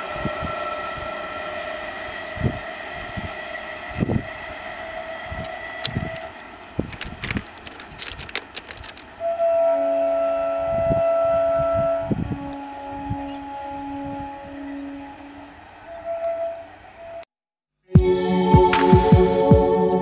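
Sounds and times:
loud train horn: 0.0s - 6.4s, 9.2s - 17.2s
electric train whine: 0.0s - 17.2s
sharp clicks: 5.4s - 9.1s.

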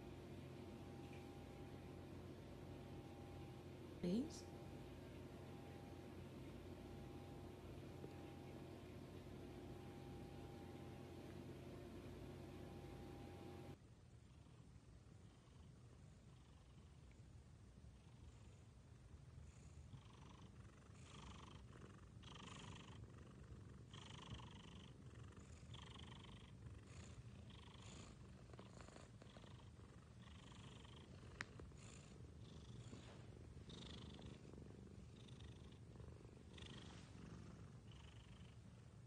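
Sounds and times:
cat purring: 0.0s - 39.0s.

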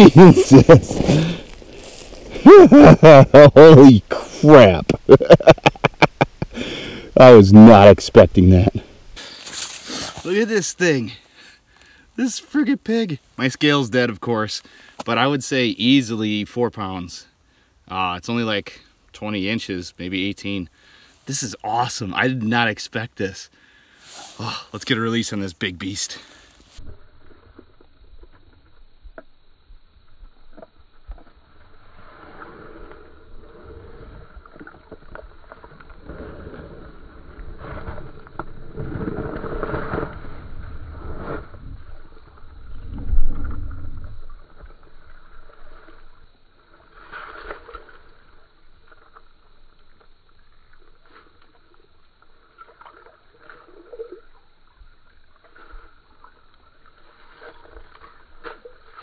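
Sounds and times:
water sloshing and gurgling: 30.5s - 59.0s
water splashes: 49.9s - 59.0s.

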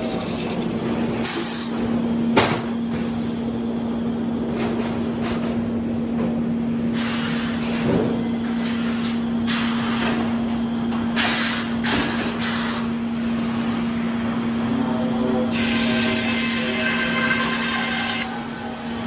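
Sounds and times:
sawmill machinery humming: 13.5s - 19.0s.

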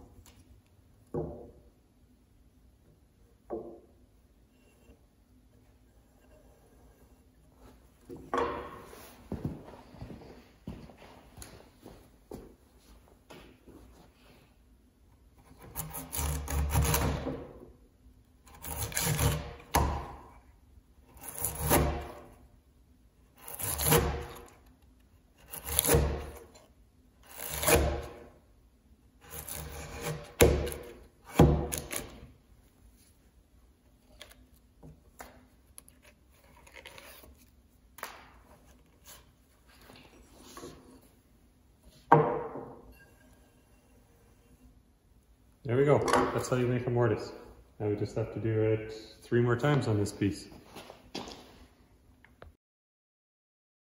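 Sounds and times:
chisel scraping wood: 5.6s - 7.6s, 15.4s - 17.6s, 18.4s - 20.2s, 21.1s - 22.4s, 23.3s - 28.4s, 29.2s - 32.3s, 35.8s - 37.5s, 41.8s - 44.8s.

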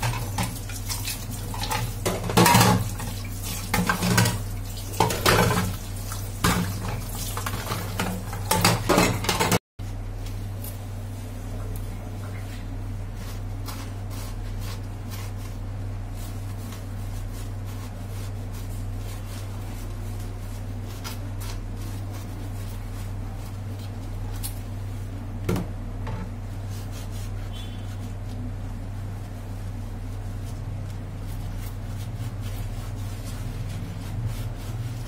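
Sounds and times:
sponge scrubbing dishes: 0.0s - 9.6s, 11.6s - 25.2s, 26.0s - 35.0s
steady low hum: 0.0s - 35.0s
dishes clicking and clinking: 7.7s - 9.6s.

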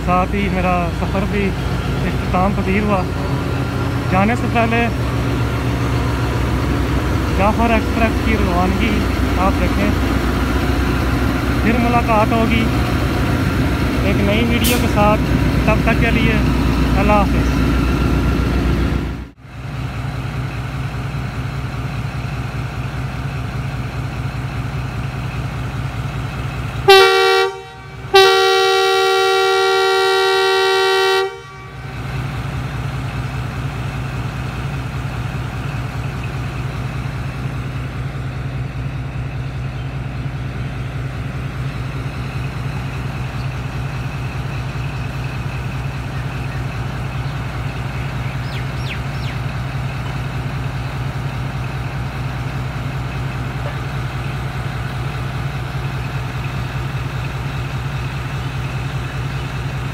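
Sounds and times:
diesel engine humming: 0.0s - 59.9s
two-tone train air horn: 26.8s - 32.1s.

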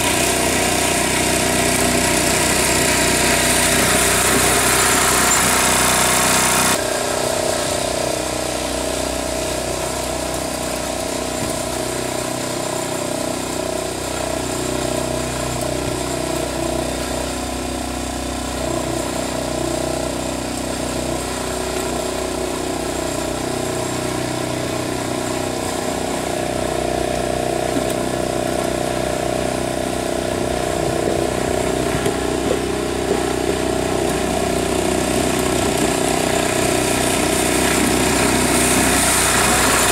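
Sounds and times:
lawn tractor engine running: 0.0s - 39.9s.

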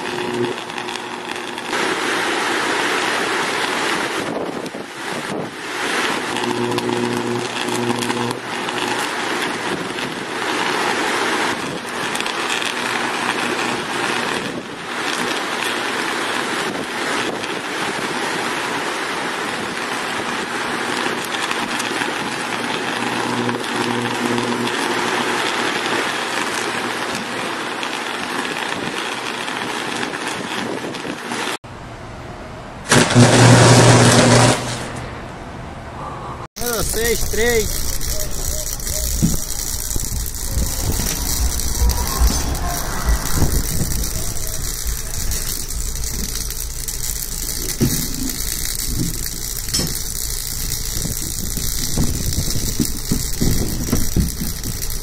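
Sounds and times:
electrical arc buzzing hiss: 0.0s - 27.3s, 36.6s - 55.0s
steady low hum: 6.2s - 9.1s, 36.6s - 54.9s.

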